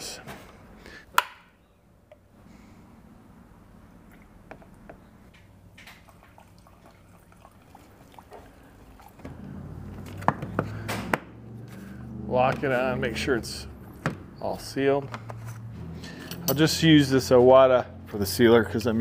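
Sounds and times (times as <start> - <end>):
liquid trickling into cup: 5.9 - 9.4.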